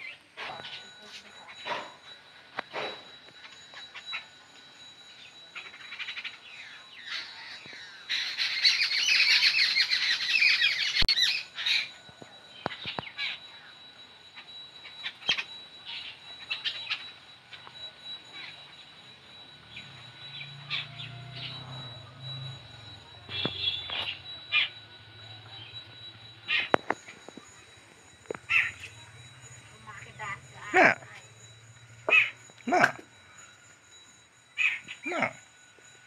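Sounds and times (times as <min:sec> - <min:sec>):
birds squawking: 0:05.6 - 0:12.0, 0:14.4 - 0:17.6, 0:19.7 - 0:21.8, 0:23.3 - 0:24.8, 0:26.5 - 0:27.2, 0:28.4 - 0:31.2, 0:32.0 - 0:32.9, 0:34.6 - 0:35.4.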